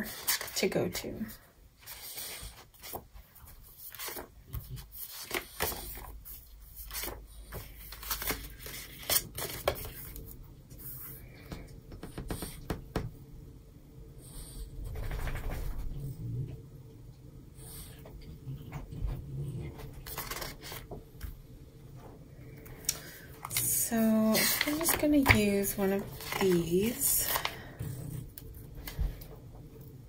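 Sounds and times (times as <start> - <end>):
paper pages rustling: 1.8 - 11.0, 20.0 - 21.0, 23.0 - 27.8.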